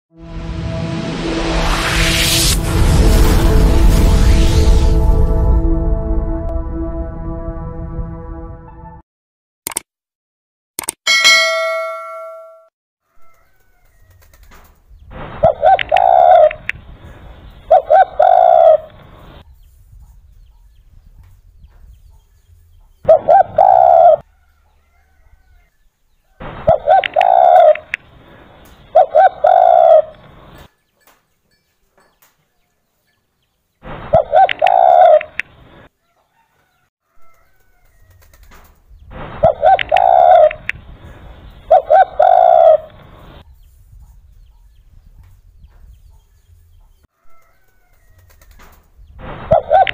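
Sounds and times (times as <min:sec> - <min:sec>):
dove cooing: 0:15.4 - 0:16.6, 0:17.7 - 0:18.9, 0:23.1 - 0:24.2, 0:26.7 - 0:27.9, 0:28.9 - 0:30.1, 0:34.1 - 0:35.4, 0:39.4 - 0:40.6, 0:41.7 - 0:43.0, 0:49.5 - 0:49.9.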